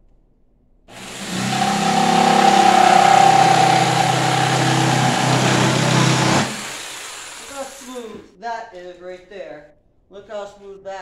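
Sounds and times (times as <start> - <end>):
jigsaw cutting wood: 0.9 - 7.8.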